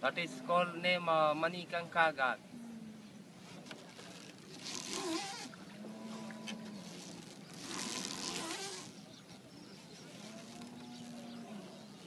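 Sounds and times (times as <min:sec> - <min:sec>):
water swishing along boat: 0:03.0 - 0:12.0.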